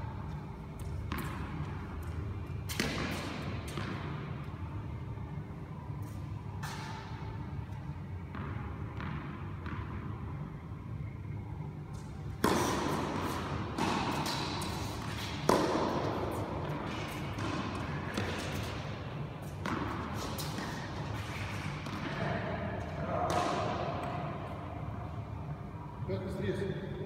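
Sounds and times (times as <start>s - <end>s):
steady low hum: 0.0s - 27.0s
tennis ball bouncing on court: 0.7s - 4.5s, 6.0s - 10.2s, 11.9s - 24.6s
racket striking tennis ball: 0.8s - 4.5s, 6.6s - 7.3s, 12.0s - 24.6s.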